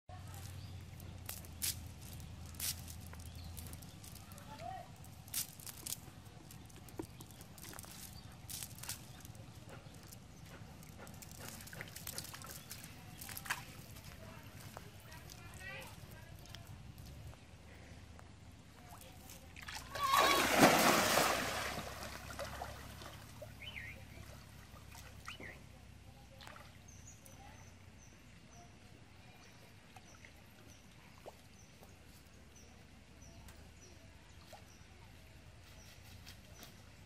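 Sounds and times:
faint water movement: 0:00.1 - 0:35.6
cast net splashing into water: 0:19.6 - 0:23.5
faint high chirp: 0:23.4 - 0:24.4, 0:25.2 - 0:25.8.

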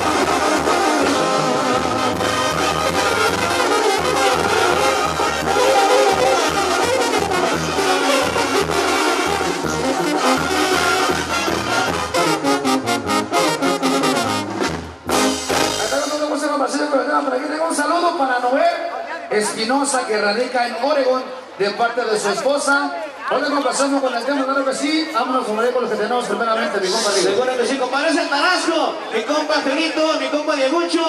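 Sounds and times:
brass band playing live: 0:00.0 - 0:20.3.

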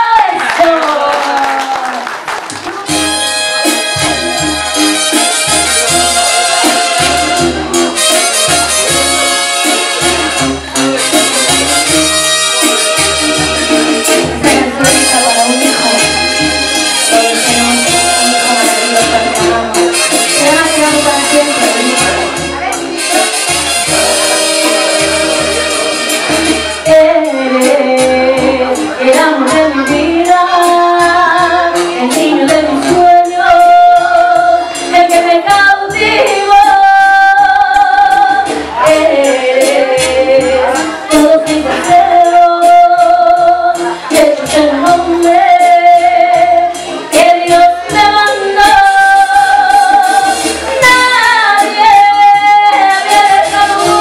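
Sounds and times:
amplified backing music: 0:00.0 - 0:54.0
woman singing into microphone: 0:14.1 - 0:22.7, 0:26.8 - 0:54.0.

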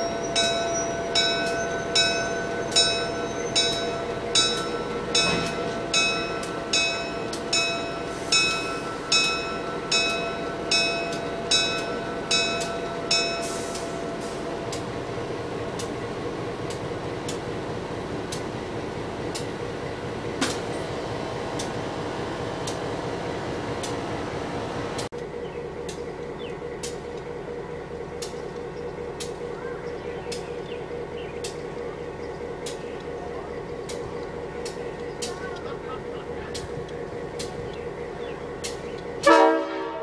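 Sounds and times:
locomotive bell ringing: 0:00.0 - 0:18.0
train running noise: 0:00.0 - 0:40.0.

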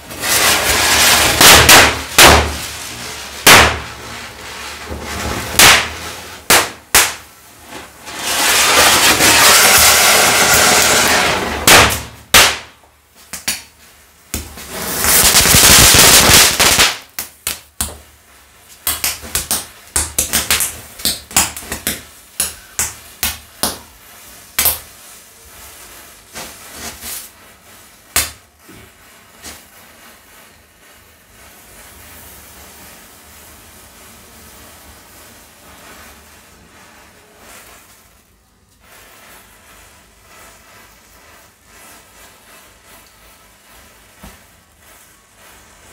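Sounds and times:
firecracker hissing spray: 0:00.0 - 0:12.8, 0:14.2 - 0:18.6, 0:21.7 - 0:45.9
firecracker bangs: 0:00.1 - 0:07.3, 0:08.1 - 0:12.8, 0:14.4 - 0:17.2
rapid cracks and pops: 0:00.2 - 0:02.7, 0:05.6 - 0:07.2, 0:08.5 - 0:12.7, 0:14.3 - 0:18.1.

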